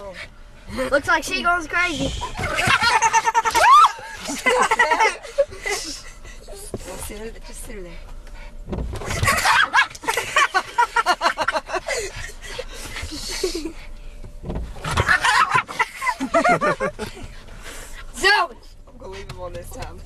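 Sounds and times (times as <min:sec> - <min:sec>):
person laughing heartily: 0:02.4 - 0:06.2, 0:09.2 - 0:13.8, 0:15.1 - 0:17.3
low thump: 0:08.7 - 0:09.4.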